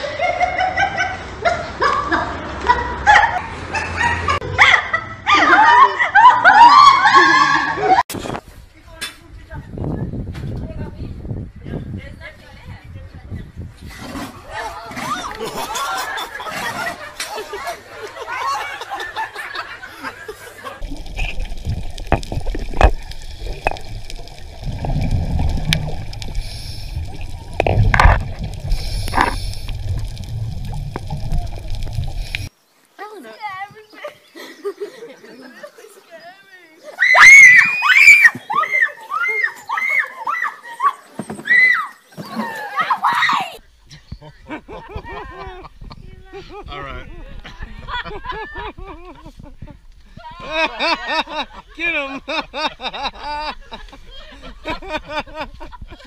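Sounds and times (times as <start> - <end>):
people laughing: 0.0 - 8.0, 15.2 - 21.3, 34.0 - 36.1, 43.9 - 56.0
loud water bursts: 20.8 - 32.5
underwater sloshing and gurgling: 20.8 - 32.5.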